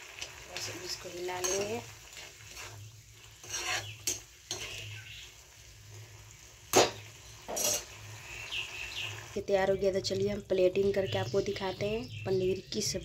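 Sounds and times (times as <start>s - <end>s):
spoon scraping a pan: 0.6s - 5.3s, 6.7s - 8.1s.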